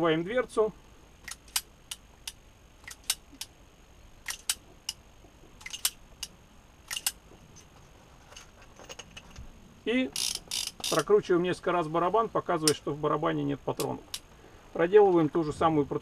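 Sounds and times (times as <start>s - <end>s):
revolver cylinder clicks: 1.2s - 3.5s, 4.2s - 5.0s, 5.6s - 6.3s, 6.9s - 7.2s, 12.6s - 12.9s, 13.7s - 14.3s.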